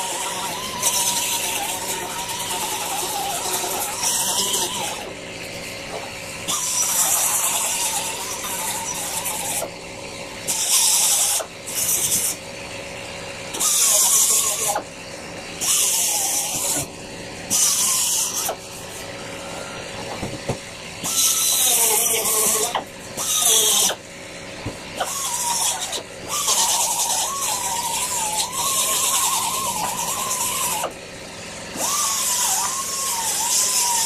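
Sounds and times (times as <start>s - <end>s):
sputtering nozzle squeal: 0.0s - 34.0s
spray foam hissing squirts: 10.5s - 12.3s.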